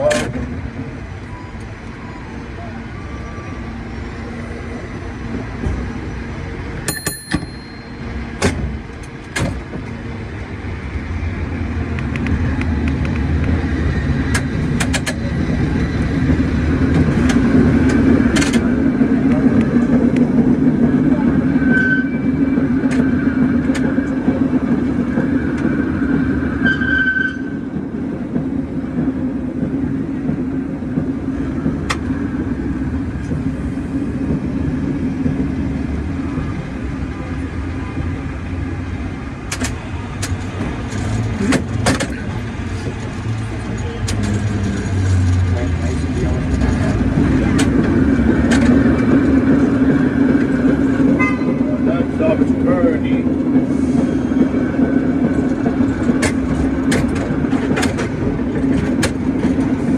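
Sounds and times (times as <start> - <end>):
cable car rumble and rattle: 0.0 - 59.9
sharp clanks and clicks: 14.3 - 15.2.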